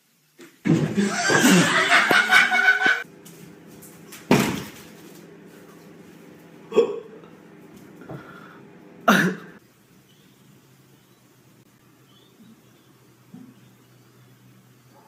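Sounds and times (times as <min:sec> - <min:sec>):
low hum: 0:00.9 - 0:09.6.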